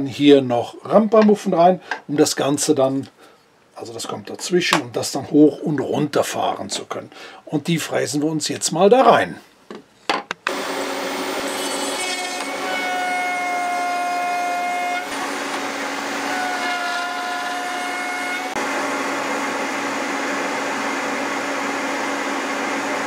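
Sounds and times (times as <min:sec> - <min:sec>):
whining tone of routing wood: 0:10.5 - 0:22.9
table router running: 0:10.5 - 0:23.0.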